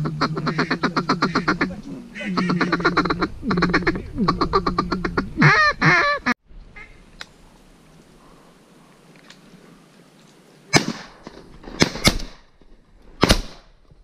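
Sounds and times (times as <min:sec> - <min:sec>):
duck call quacks: 0:00.0 - 0:07.0.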